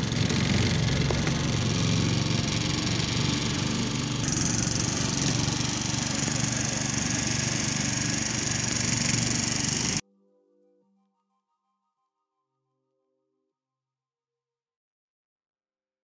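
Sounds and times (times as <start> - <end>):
outboard motor running: 0.0 - 10.0.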